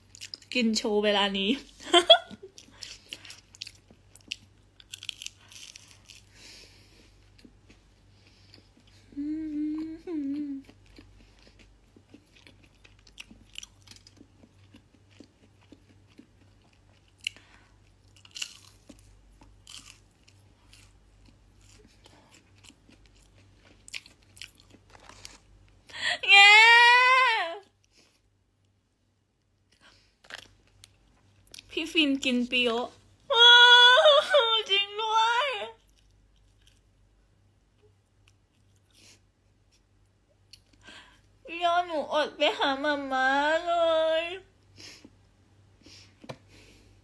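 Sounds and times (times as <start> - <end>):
crunchy chewing of fried chicken: 2.4 - 9.1, 10.2 - 25.8, 29.6 - 31.8, 35.8 - 40.9
person humming mm: 9.0 - 10.8.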